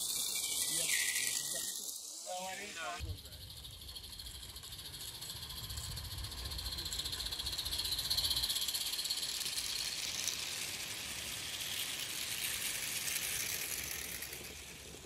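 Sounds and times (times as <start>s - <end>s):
small wheels rattling on track: 0.0s - 15.0s
steam hissing: 0.0s - 15.0s.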